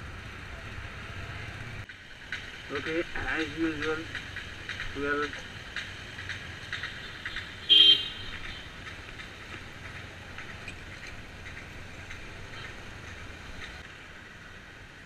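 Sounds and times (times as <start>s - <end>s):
motorcycle engine running: 0.0s - 13.8s
horn toot: 7.6s - 8.6s.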